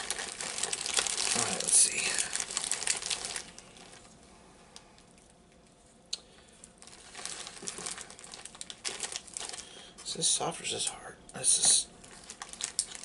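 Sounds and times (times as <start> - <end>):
plastic bag rustling: 0.0 - 4.2, 6.8 - 10.3, 12.0 - 13.0.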